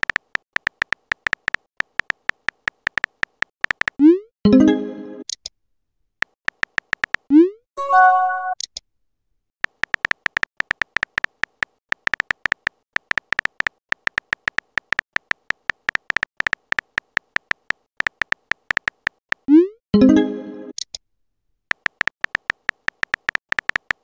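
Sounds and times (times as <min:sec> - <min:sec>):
phone keyboard key clicks: 0:00.0 - 0:04.0, 0:06.2 - 0:07.3, 0:09.6 - 0:19.4, 0:21.7 - 0:24.0.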